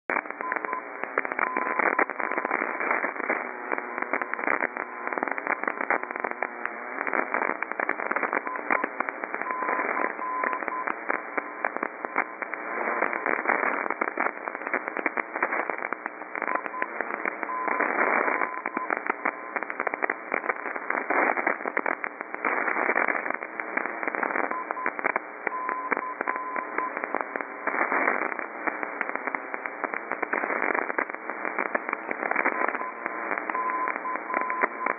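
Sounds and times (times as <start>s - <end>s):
crackling radio static: 0.0s - 34.9s.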